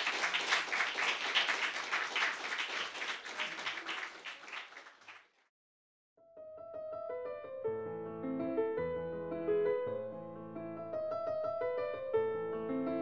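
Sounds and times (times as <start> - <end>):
audience applauding: 0.0 - 5.5
piano music: 6.3 - 13.0.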